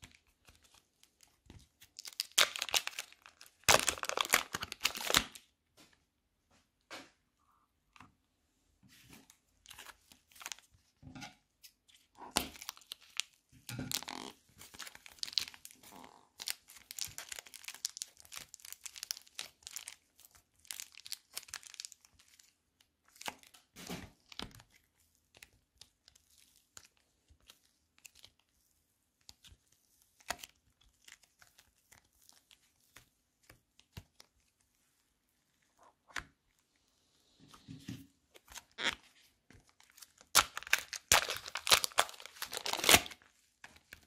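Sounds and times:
slime crackling and tearing: 0:01.8 - 0:05.4, 0:12.2 - 0:28.5, 0:38.4 - 0:44.0.

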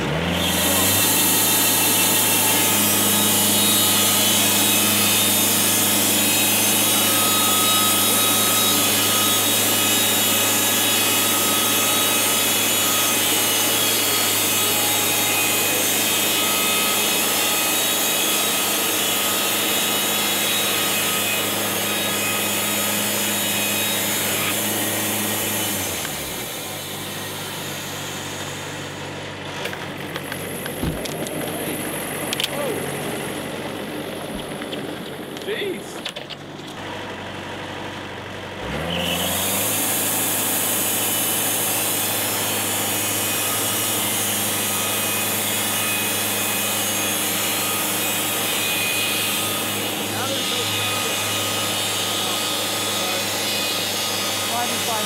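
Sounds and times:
sawmill engine running: 0:00.0 - 0:55.0.

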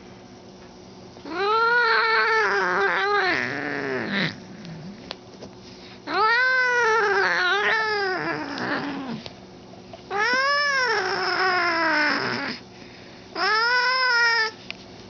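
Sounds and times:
cat yowling: 0:01.2 - 0:04.4, 0:06.1 - 0:09.2, 0:10.1 - 0:12.6, 0:13.4 - 0:14.6.

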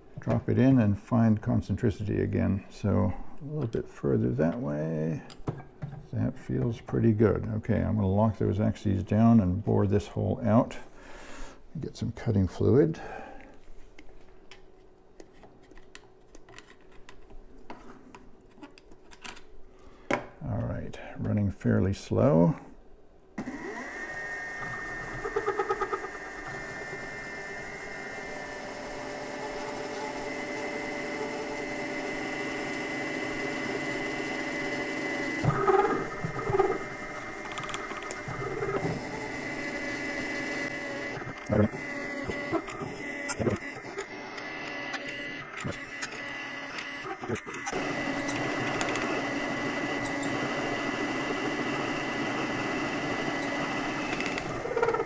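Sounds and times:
drill cutting metal: 0:23.4 - 0:55.0
mill motor whine: 0:23.4 - 0:55.0.

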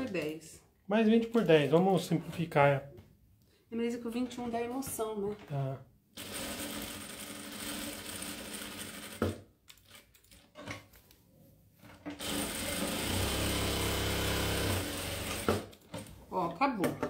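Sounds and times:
sewing machine stitching: 0:06.2 - 0:10.4, 0:11.9 - 0:16.1.

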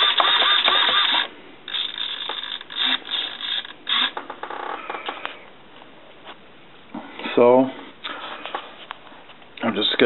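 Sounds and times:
steering servo whirring: 0:00.0 - 0:04.2.

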